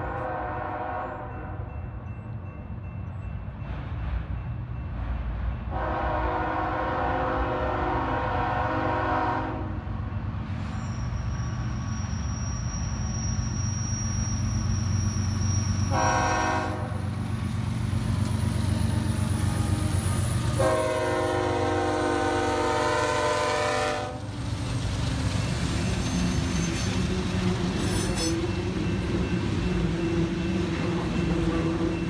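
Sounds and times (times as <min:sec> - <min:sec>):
locomotive horn blasts: 0:00.0 - 0:01.6, 0:05.7 - 0:09.8, 0:15.9 - 0:17.0, 0:20.6 - 0:24.2.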